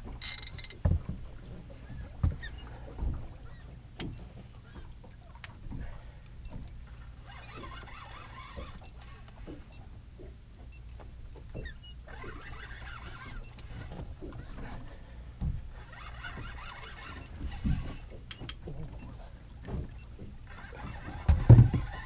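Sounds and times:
fishing reel winding: 0.2 - 0.8, 7.2 - 9.7, 12.1 - 14.0, 15.8 - 18.5.

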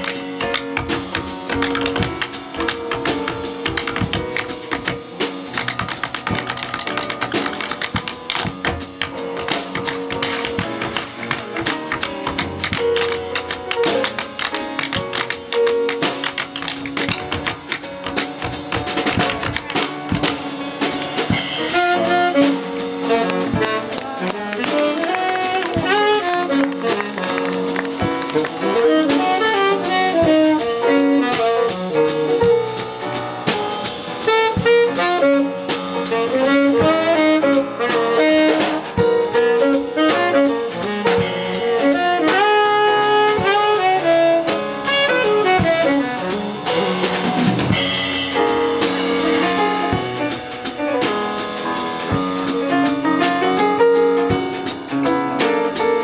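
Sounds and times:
drum kit: 0.0 - 56.0
piano chords: 0.0 - 56.0
saxophone melody: 21.3 - 32.8, 34.2 - 48.6.

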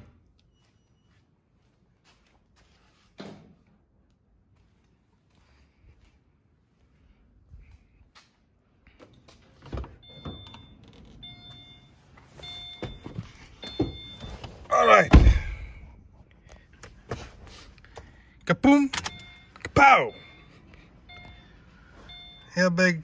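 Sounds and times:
car warning chime beeping: 9.9 - 15.1, 18.5 - 23.0
loud thump: 15.1 - 15.8.

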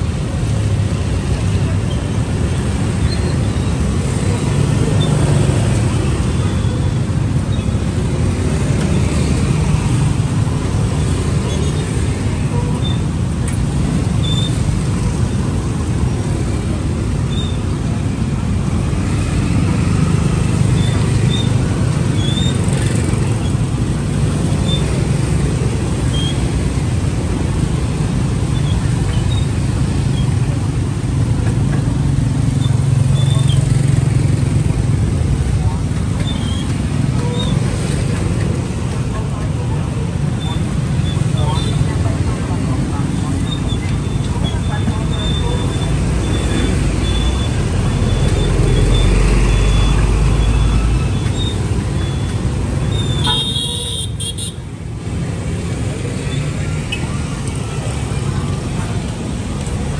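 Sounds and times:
road traffic rumble: 0.0 - 59.9.

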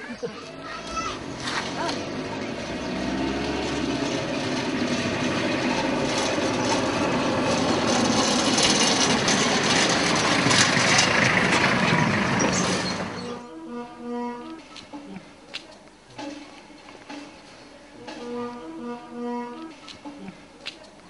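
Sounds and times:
tyres on gravel: 0.1 - 13.4
vehicle engine passing: 0.4 - 14.5, 17.1 - 20.3.

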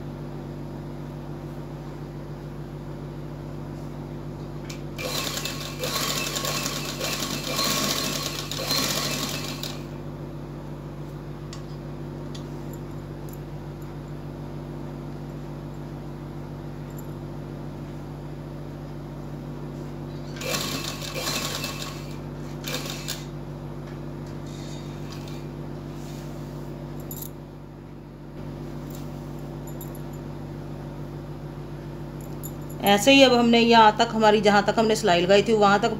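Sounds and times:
steady low hum: 0.0 - 35.9
sewing machine stitching: 5.0 - 9.9, 20.2 - 23.3.

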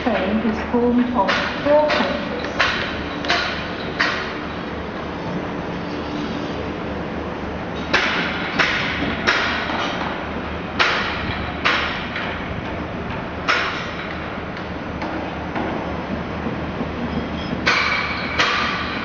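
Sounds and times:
sharp metallic bangs: 7.8 - 10.0, 17.4 - 19.0.

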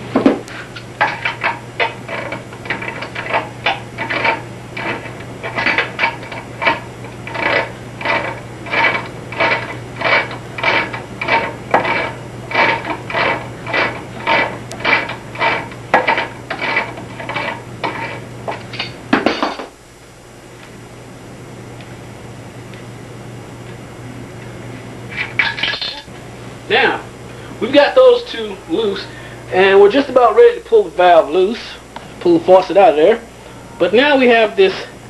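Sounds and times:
wrench scraping on metal nut: 1.1 - 18.2.

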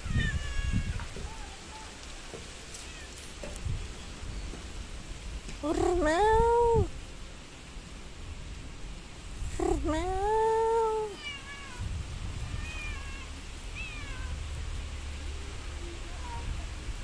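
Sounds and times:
cat meowing: 0.0 - 1.9, 2.8 - 3.2, 9.6 - 14.4.

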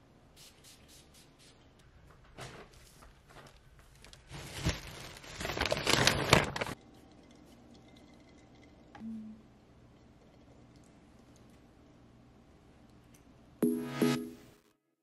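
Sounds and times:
plastic bags rustling and crinkling: 2.2 - 6.8.

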